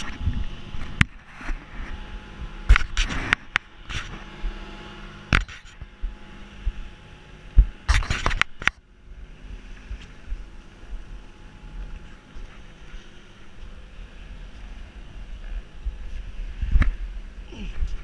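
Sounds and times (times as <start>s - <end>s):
faint low hum: 0.0s - 18.0s
knocks and scrapes on camera body: 5.3s - 5.9s, 7.6s - 8.8s.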